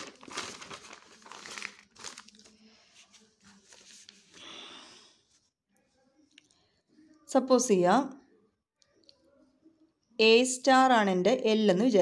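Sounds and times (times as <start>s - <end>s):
paper pages rustling: 0.0s - 4.4s.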